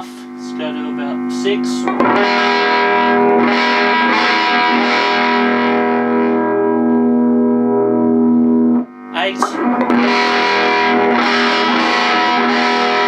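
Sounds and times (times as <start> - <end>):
electric guitar chords through tube amp: 0.0 - 13.0.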